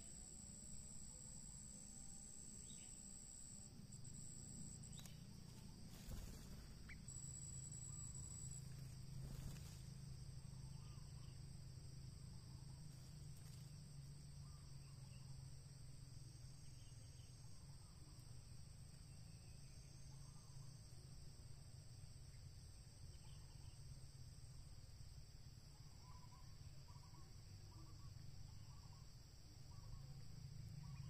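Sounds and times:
insect trilling: 0:00.0 - 0:09.8.

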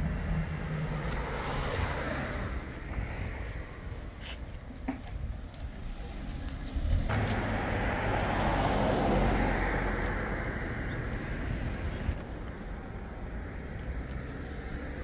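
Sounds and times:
vehicle passing by: 0:00.0 - 0:03.5, 0:06.0 - 0:12.2.

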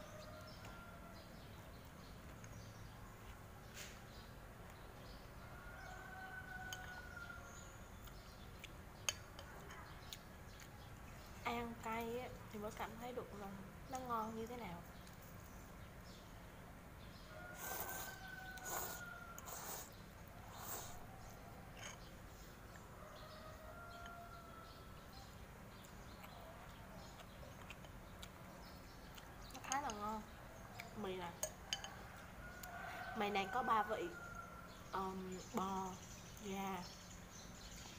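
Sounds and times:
utensils clinking on ceramic bowl: 0:31.4 - 0:32.0.

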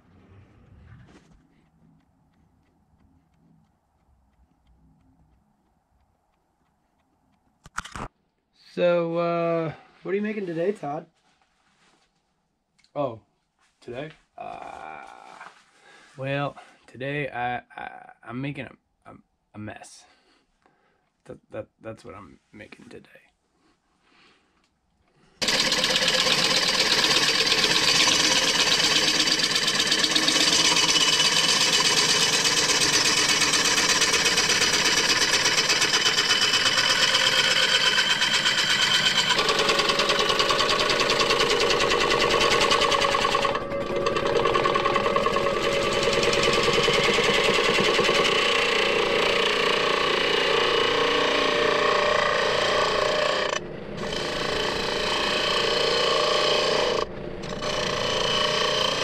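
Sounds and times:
gouge rasping on spinning wood: 0:25.4 - 0:59.0.

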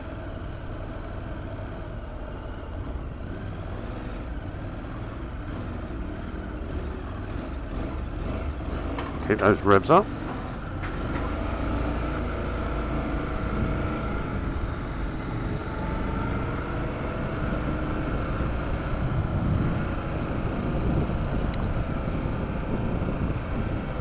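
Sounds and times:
motorcycle engine running: 0:00.0 - 0:24.0
wind rumbling on microphone: 0:17.2 - 0:24.0.

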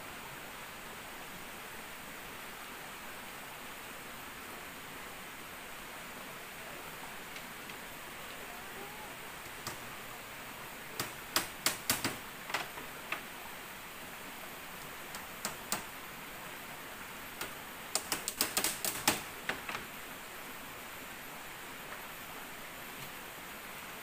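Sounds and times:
knocks and taps on bamboo: 0:09.4 - 0:09.8, 0:11.0 - 0:13.3, 0:14.8 - 0:15.9, 0:17.4 - 0:19.9.

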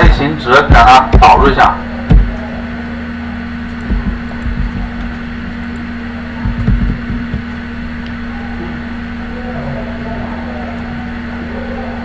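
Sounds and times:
soft low thumps: 0:00.0 - 0:02.6, 0:03.7 - 0:05.7, 0:06.4 - 0:08.1
room noise hum and hiss: 0:00.0 - 0:12.0.

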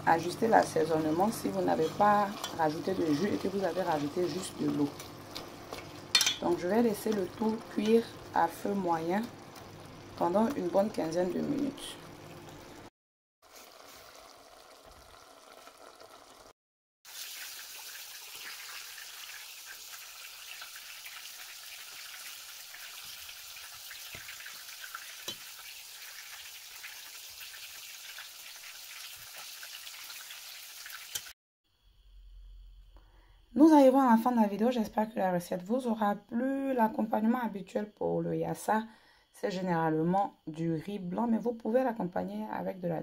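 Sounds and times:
sauce sizzling in a pot: 0:00.1 - 0:16.5, 0:17.1 - 0:31.4.

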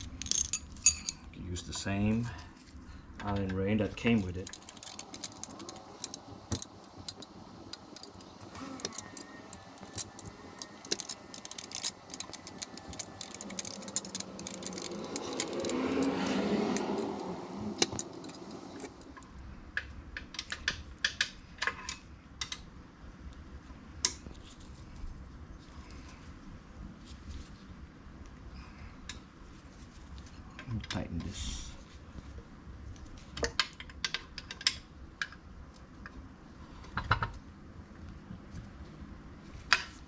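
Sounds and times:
broad rush of noise: 0:04.0 - 0:19.3
allen key clicking on metal: 0:04.4 - 0:19.2.

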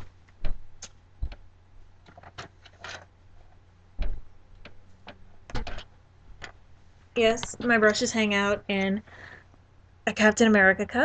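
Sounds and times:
thumps and clicks of objects: 0:00.0 - 0:06.6
faint steady hum: 0:00.0 - 0:11.0.

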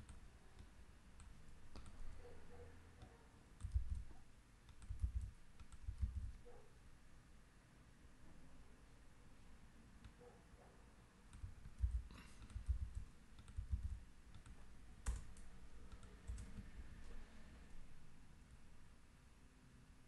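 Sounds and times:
typing on computer keyboard: 0:00.0 - 0:02.1, 0:03.6 - 0:06.4, 0:11.3 - 0:16.7.

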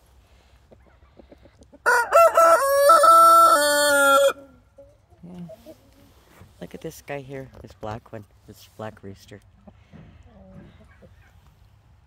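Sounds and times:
rooster crowing: 0:01.9 - 0:04.4.

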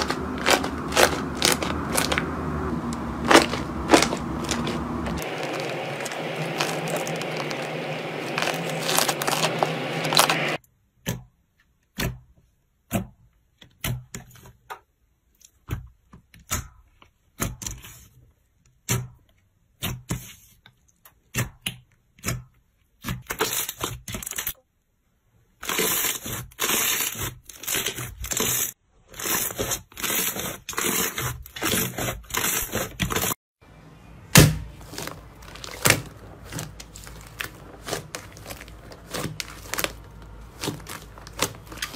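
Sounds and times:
slime crackling and popping: 0:00.0 - 0:10.6, 0:34.4 - 0:41.9.

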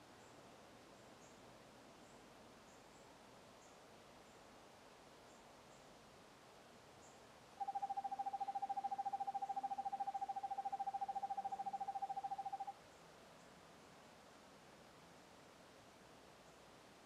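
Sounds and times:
owl trilling: 0:07.6 - 0:12.7.

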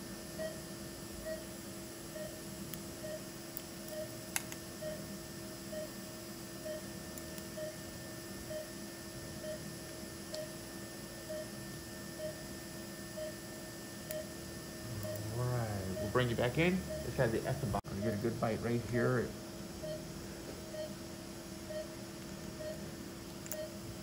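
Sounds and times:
electrical hum: 0:00.0 - 0:24.0
patient monitor beeping: 0:00.3 - 0:00.6, 0:01.2 - 0:01.5, 0:02.1 - 0:02.4, 0:03.0 - 0:03.3, 0:03.9 - 0:04.2, 0:04.8 - 0:05.0, 0:05.7 - 0:06.0, 0:06.6 - 0:08.8, 0:09.4 - 0:09.7, 0:10.3 - 0:12.5, 0:13.1 - 0:13.5, 0:14.1 - 0:18.6, 0:19.8 - 0:20.0, 0:20.7 - 0:21.0, 0:21.6 - 0:22.0, 0:22.6 - 0:22.9, 0:23.5 - 0:23.8.

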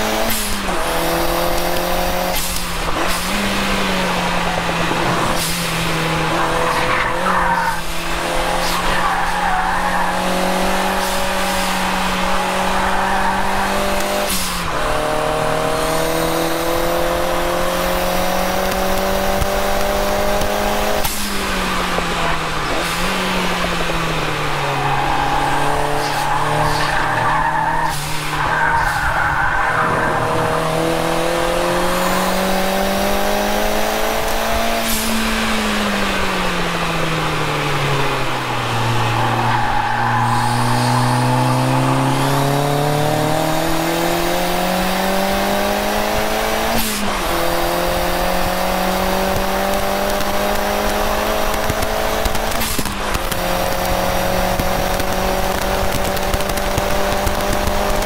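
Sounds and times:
car engine revving: 0:00.0 - 0:58.0
gear changes: 0:00.2 - 0:58.0.

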